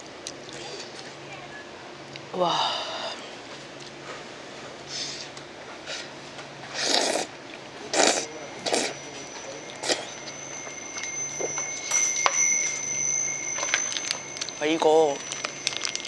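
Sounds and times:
chewing and mouth sounds: 0.0s - 1.0s
loud noodle slurps: 6.7s - 7.3s, 7.9s - 8.9s
faint high whine: 6.8s - 16.0s.

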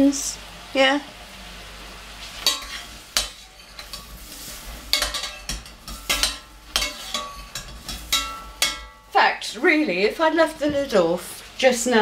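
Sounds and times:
metal utensil scraping saucepan: 2.4s - 9.1s.

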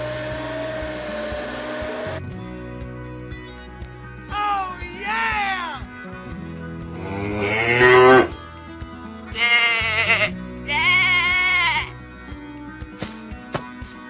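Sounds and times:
background music: 0.0s - 14.0s
cartoon sheep bleating: 7.0s - 8.3s, 9.3s - 11.9s.

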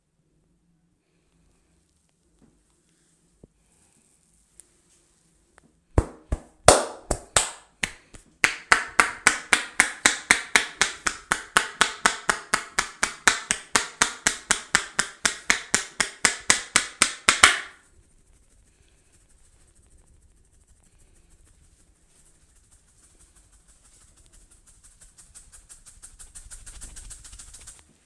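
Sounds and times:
hand slaps of massage: 6.0s - 17.8s.

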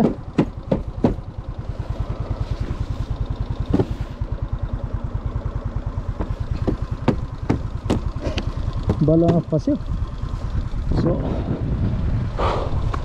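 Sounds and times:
sharp knocks: 0.0s - 1.2s, 3.7s - 4.0s, 6.1s - 9.5s
scooter engine puttering: 0.0s - 13.0s.

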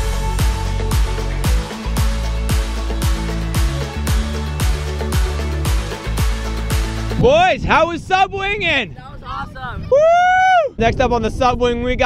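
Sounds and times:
kick drum: 0.0s - 7.0s
electronic dance music: 0.0s - 7.5s.

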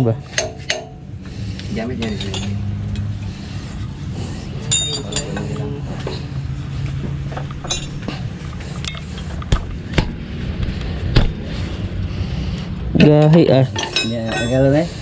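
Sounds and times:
wrenches clinking on engine parts: 0.0s - 1.0s, 1.8s - 3.2s, 4.6s - 5.6s, 7.4s - 9.6s, 12.9s - 15.0s.

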